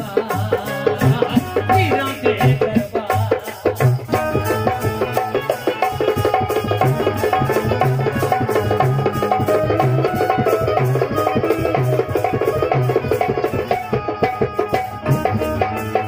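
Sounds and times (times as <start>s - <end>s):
hand drum beating: 0.0s - 16.0s
sustained melody line: 4.1s - 16.0s.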